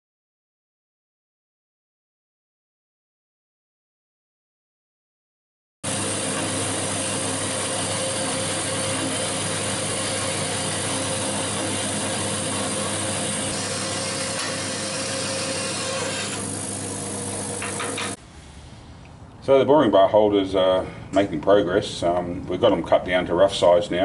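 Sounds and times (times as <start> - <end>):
band saw cutting steel: 5.8 - 18.2.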